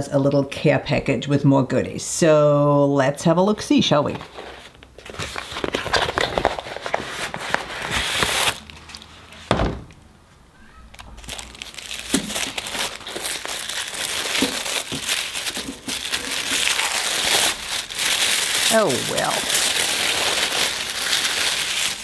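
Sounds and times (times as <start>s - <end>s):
tissue paper crinkling: 4.1s - 9.4s, 10.9s - 22.0s
paper envelope tearing: 4.3s - 9.1s, 10.8s - 22.0s
thump: 9.5s - 10.0s.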